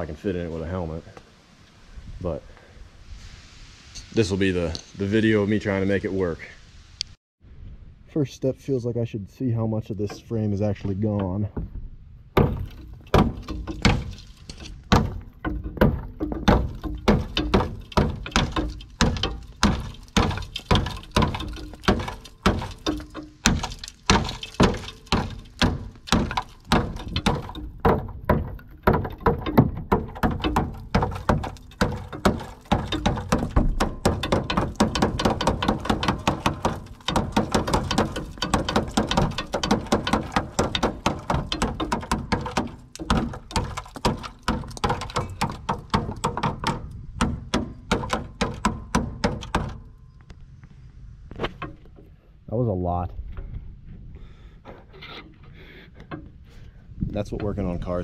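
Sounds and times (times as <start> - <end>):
hammer striking steel frame: 12.4 - 49.9.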